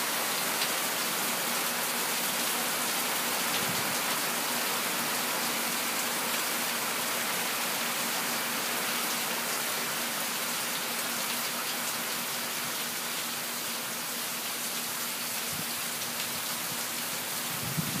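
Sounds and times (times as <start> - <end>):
steady rain on a roof: 0.0 - 18.0.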